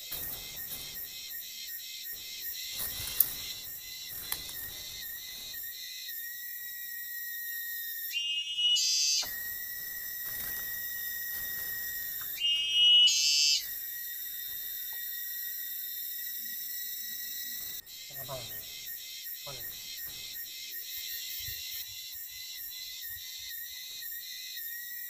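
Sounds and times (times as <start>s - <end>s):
high-pitched insect chorus: 0.0s - 25.0s
whistling call: 8.1s - 9.6s, 11.5s - 13.8s.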